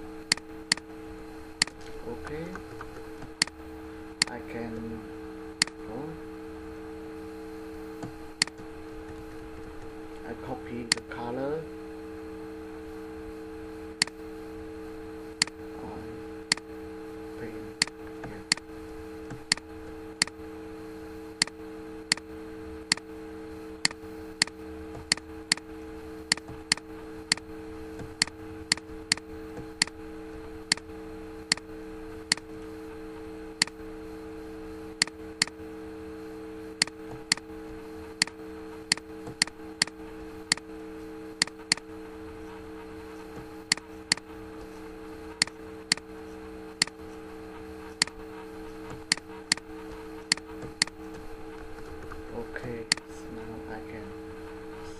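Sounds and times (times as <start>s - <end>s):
steady low hum: 0.0s - 54.9s
computer mouse clicking: 0.3s - 0.8s, 1.6s - 3.6s, 8.0s - 10.3s, 10.9s - 11.1s, 16.5s - 16.7s, 17.8s - 20.4s, 21.4s - 22.3s, 22.9s - 23.1s, 23.8s - 25.7s, 26.3s - 30.0s, 30.7s - 30.9s, 31.5s - 31.7s, 32.3s - 32.5s, 33.6s - 33.8s, 36.8s - 40.7s, 41.4s - 41.9s, 43.3s - 44.7s, 45.4s - 46.1s, 47.9s - 52.2s, 52.8s - 53.1s.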